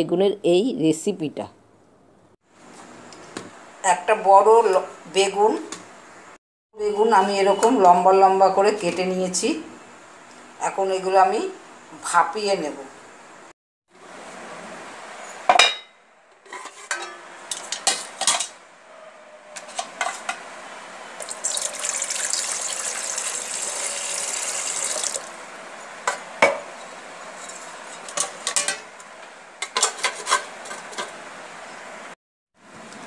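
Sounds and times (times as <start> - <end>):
water pouring into metal pot: 21.2 - 25.3.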